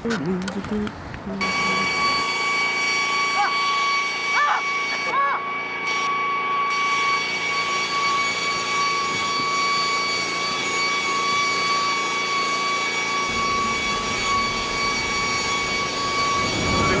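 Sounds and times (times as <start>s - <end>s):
high-pitched mechanical whine: 1.3s - 17.0s
low rumble: 13.3s - 17.0s.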